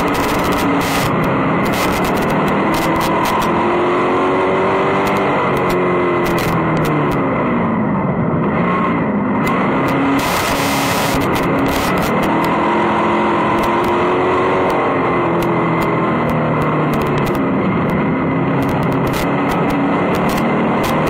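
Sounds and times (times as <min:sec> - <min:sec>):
sharp clicks: 0:00.0 - 0:03.6, 0:05.0 - 0:07.2, 0:09.4 - 0:12.6, 0:13.5 - 0:14.0, 0:14.6 - 0:18.0, 0:18.6 - 0:21.0
race car engine: 0:00.0 - 0:21.0.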